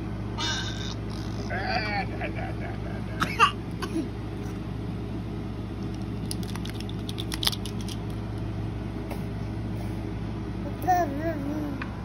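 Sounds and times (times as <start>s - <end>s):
electric fan humming: 0.0s - 12.0s.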